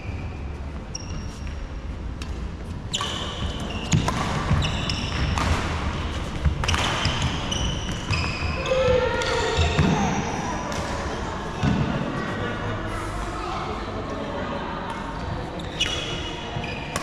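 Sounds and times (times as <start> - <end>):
sneakers squeaking on wooden floor: 0.0 - 1.7, 2.8 - 10.8, 15.6 - 17.0
racket hitting shuttlecock: 3.8 - 8.2.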